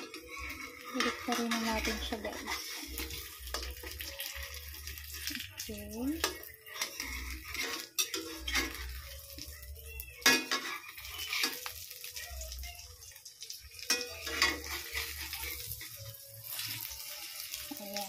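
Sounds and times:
metal spatula scraping a wok: 0.0 - 5.4, 6.2 - 17.8
egg sizzling in oil: 0.0 - 18.0.

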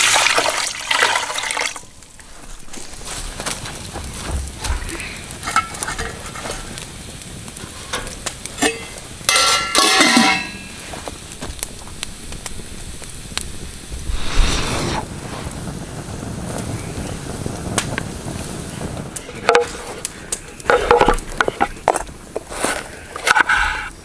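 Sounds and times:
food sizzling over campfire: 0.0 - 24.0
metal utensils clicking: 8.6 - 10.5
metal scraping on a pan: 20.6 - 23.9.

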